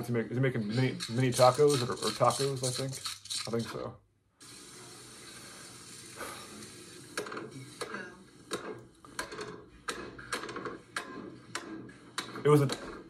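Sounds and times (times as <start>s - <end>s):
steady hiss: 1.1s - 7.8s.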